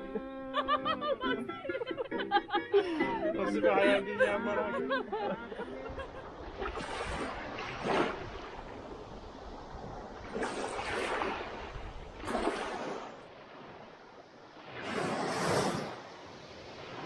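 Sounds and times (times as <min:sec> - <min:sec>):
sea waves washing onto shore: 0:04.2 - 0:17.0.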